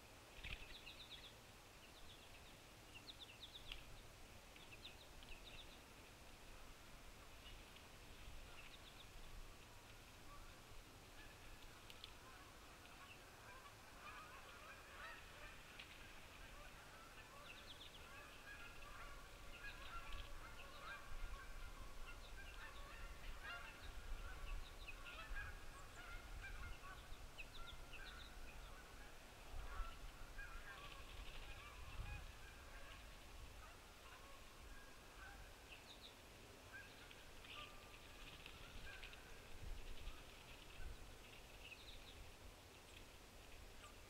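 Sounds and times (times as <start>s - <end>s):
birds calling: 11.2s - 42.2s.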